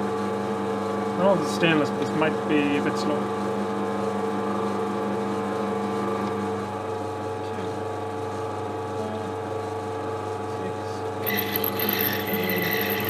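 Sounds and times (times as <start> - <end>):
metal lathe drilling hum: 11.2 - 13.0.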